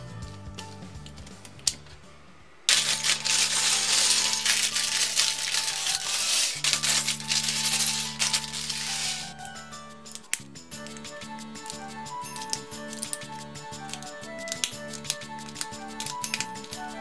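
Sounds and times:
background music: 0.0s - 17.0s
plastic bricks clattering on table: 2.7s - 10.9s, 14.6s - 16.8s.

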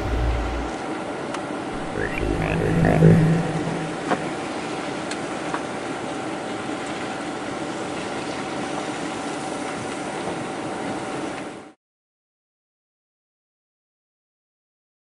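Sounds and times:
car engine at steady revs: 0.0s - 0.7s.

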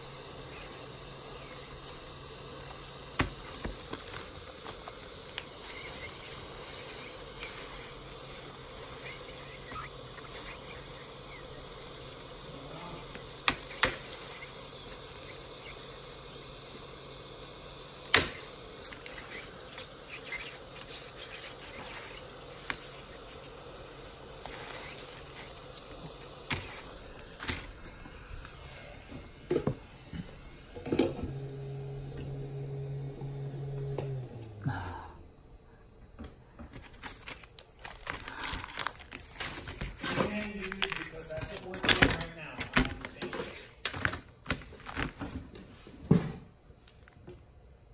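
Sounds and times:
heat gun blowing: 0.0s - 34.6s
plastic cracking and snapping: 3.1s - 6.2s, 13.1s - 14.3s, 18.0s - 19.2s, 36.7s - 45.4s.

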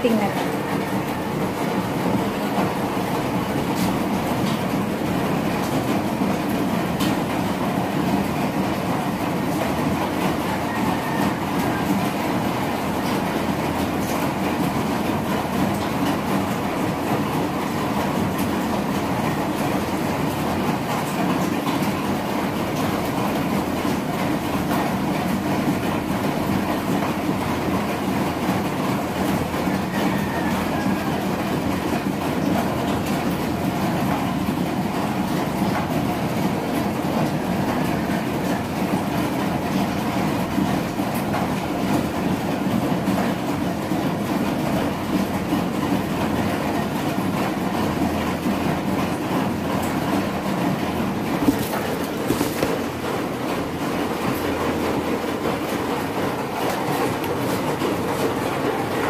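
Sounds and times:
incubator fan whirring: 0.0s - 59.0s.

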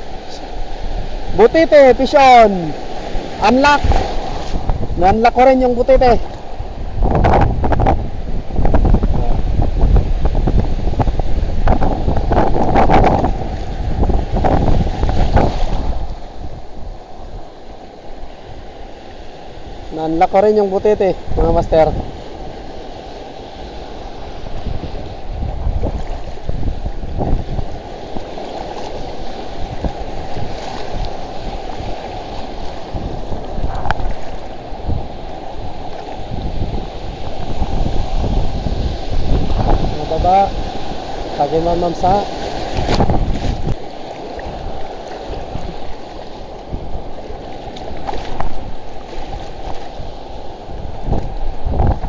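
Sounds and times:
sea surf breaking: 0.0s - 52.0s
wind buffeting microphone: 0.0s - 52.0s
shallow water sloshing: 2.1s - 5.0s, 22.0s - 52.0s.

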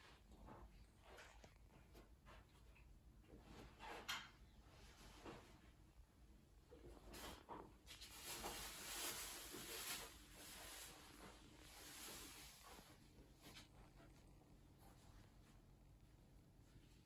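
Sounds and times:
soft rustling hiss: 0.0s - 17.0s.

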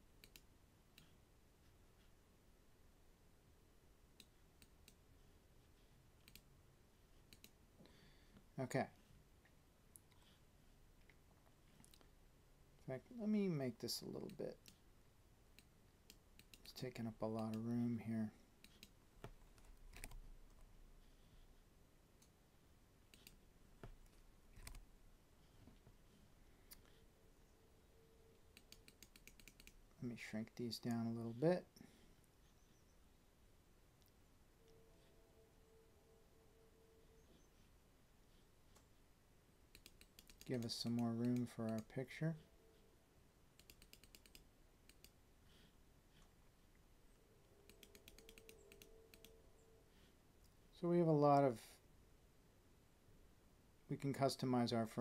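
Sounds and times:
faint steady hum: 0.0s - 55.0s
keyboard and mouse clicks: 0.2s - 1.2s, 6.2s - 6.5s, 7.3s - 7.6s, 11.0s - 12.1s, 15.6s - 16.8s, 18.6s - 20.7s, 23.1s - 24.8s, 28.5s - 29.8s, 39.7s - 42.0s, 43.6s - 45.2s, 47.6s - 49.4s
keyboard keystrokes: 18.7s - 20.2s.

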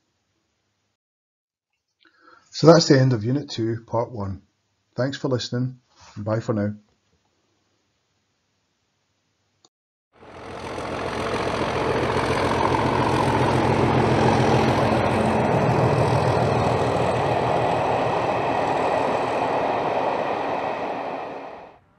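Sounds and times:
diesel locomotive engine throbbing: 10.2s - 21.8s.

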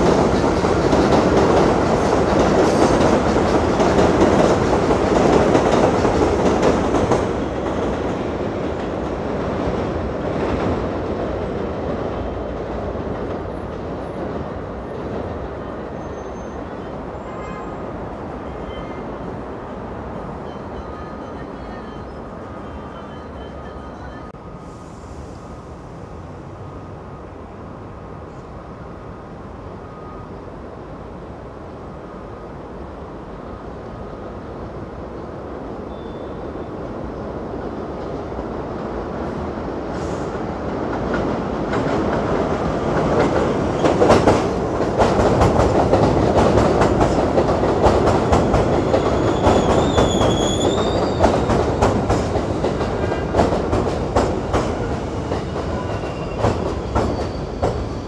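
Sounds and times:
subway train running past: 0.0s - 58.0s
high squeal of wheels: 15.9s - 17.6s, 35.9s - 36.6s, 48.9s - 51.6s, 55.3s - 58.0s.

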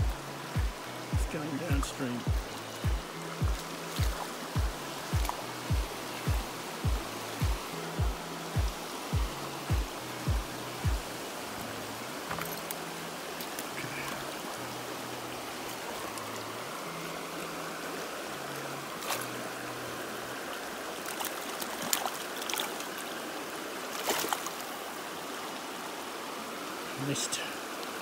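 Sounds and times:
stream running over rocks: 0.0s - 28.0s.

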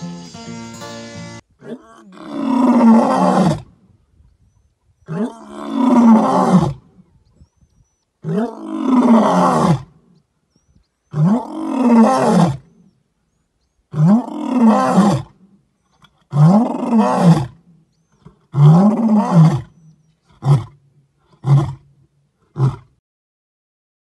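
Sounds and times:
lion roaring: 1.6s - 3.7s, 5.1s - 6.8s, 8.2s - 9.9s, 11.1s - 12.6s.

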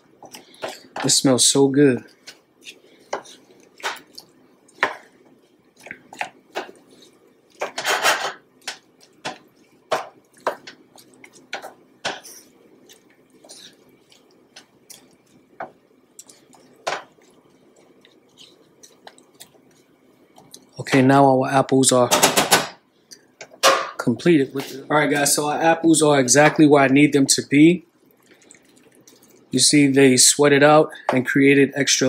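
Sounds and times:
wet squishing of fruit: 0.0s - 7.8s, 8.6s - 11.8s, 12.4s - 20.8s, 28.0s - 29.6s
wooden spoon scraping a pan: 0.2s - 4.1s, 5.8s - 12.6s, 13.4s - 15.7s.

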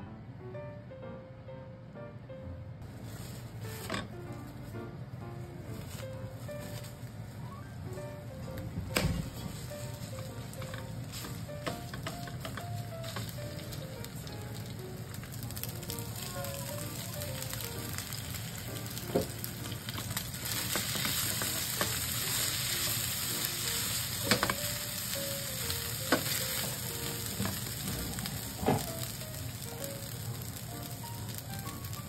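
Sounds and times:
rice and corn sizzling in oil: 9.2s - 32.0s.

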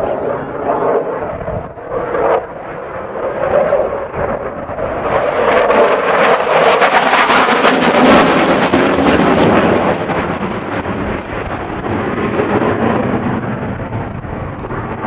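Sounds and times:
jet engine roaring: 0.0s - 15.0s.

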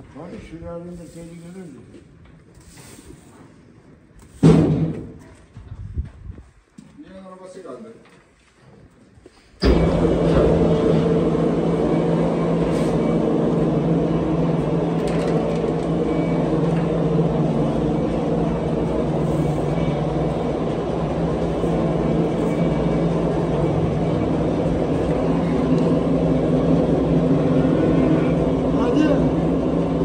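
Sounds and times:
machine humming: 9.6s - 30.0s.

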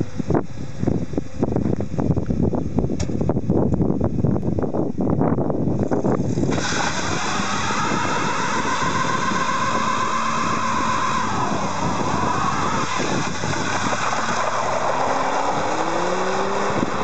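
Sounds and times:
car engine running: 5.7s - 17.0s
tyres squealing: 6.4s - 17.0s.

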